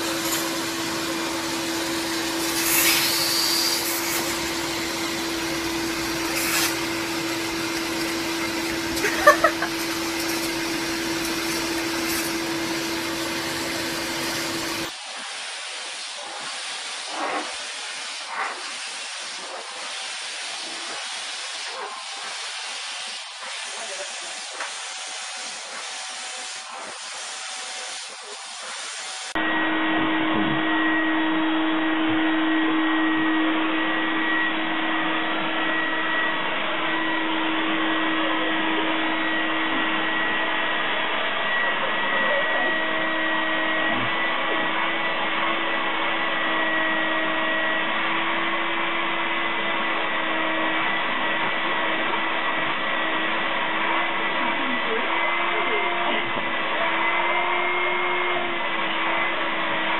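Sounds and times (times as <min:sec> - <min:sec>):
vacuum cleaner motor running: 0:00.0 - 0:59.9.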